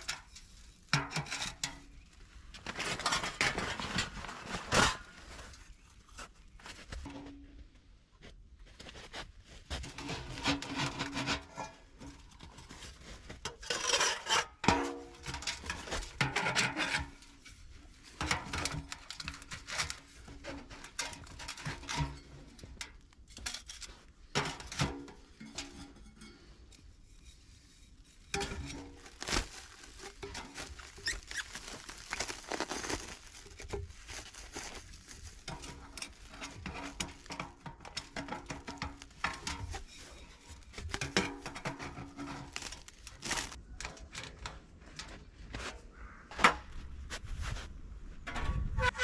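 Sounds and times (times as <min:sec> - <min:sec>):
metal stovepipe scraping: 0:00.0 - 0:02.0, 0:09.9 - 0:32.4, 0:33.0 - 0:44.0, 0:48.2 - 0:49.0.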